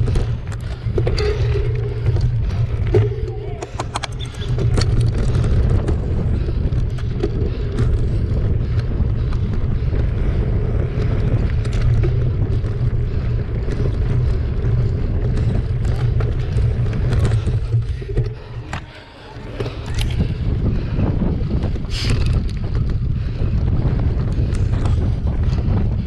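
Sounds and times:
bike rattling over bumps: 0.0s - 26.0s
tyres rumbling on dirt: 0.0s - 26.0s
wind on microphone: 0.0s - 26.0s.

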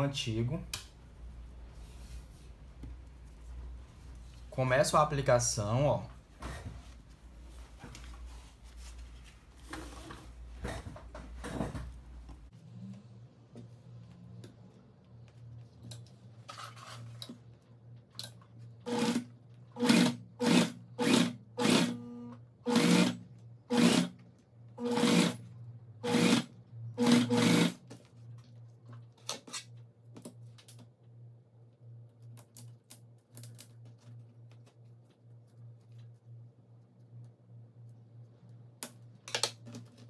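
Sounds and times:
sewing machine stitching: 18.9s - 22.0s, 22.7s - 24.2s, 24.8s - 25.4s, 26.0s - 27.8s.

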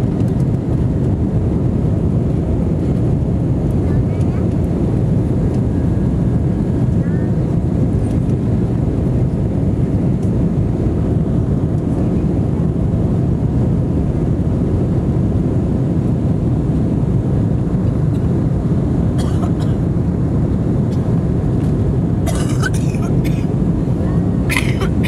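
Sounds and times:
airliner engines roaring in cabin: 0.0s - 25.0s.

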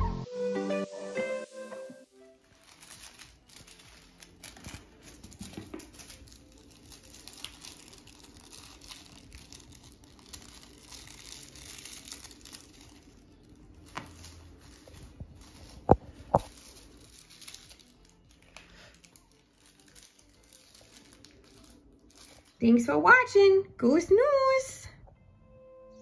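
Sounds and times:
cat rustling and scratching on rug: 2.4s - 22.5s.

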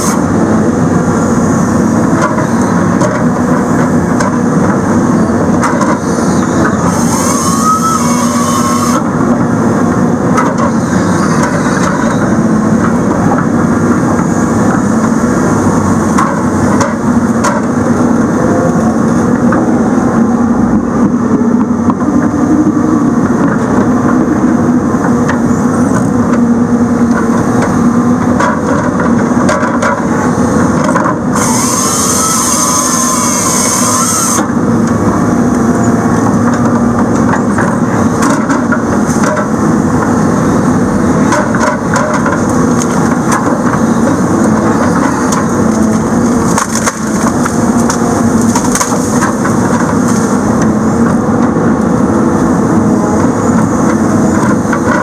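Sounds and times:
diesel engine under hydraulic load: 0.0s - 55.0s
grapple saw cutting stump: 5.7s - 9.1s, 30.9s - 34.5s.

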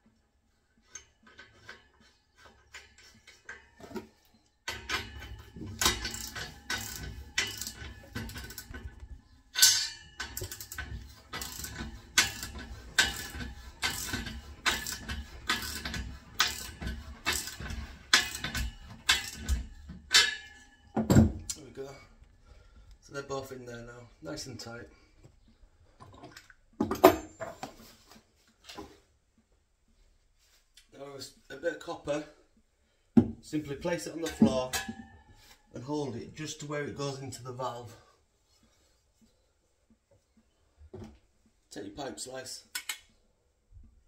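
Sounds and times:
ratchet clicking: 5.8s - 8.7s, 9.6s - 19.6s.

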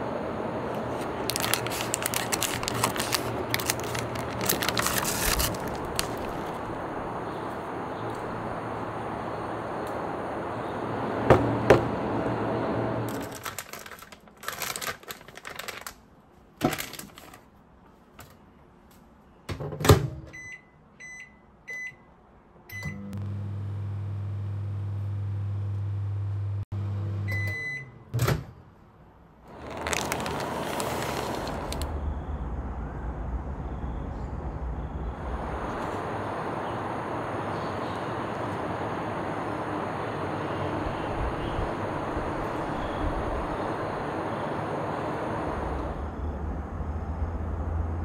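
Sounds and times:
microwave oven humming: 0.0s - 13.8s, 22.7s - 28.2s, 35.2s - 48.0s
microwave long beep: 20.3s - 22.1s, 22.7s - 28.1s, 40.1s - 45.6s
microwave keypad beeps: 20.4s - 22.0s, 22.7s - 23.1s, 27.3s - 28.0s.

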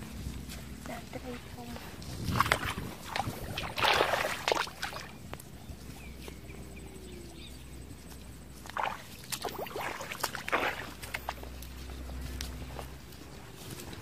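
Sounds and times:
splashes and squelches in mud: 1.9s - 5.8s, 8.5s - 12.7s.

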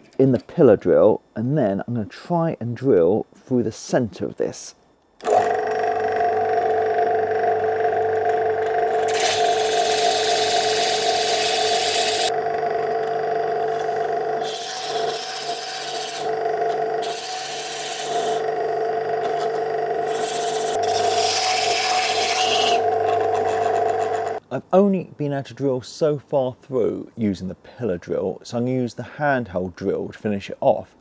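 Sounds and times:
drill bit cutting wood: 5.2s - 24.4s
drill motor humming: 5.2s - 24.4s.

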